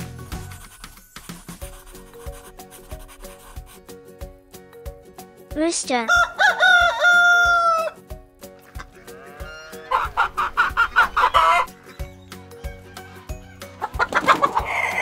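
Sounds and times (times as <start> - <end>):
background music with steady beat: 0.0 - 15.0
rooster crowing: 6.1 - 8.0, 9.1 - 11.7, 12.5 - 13.9.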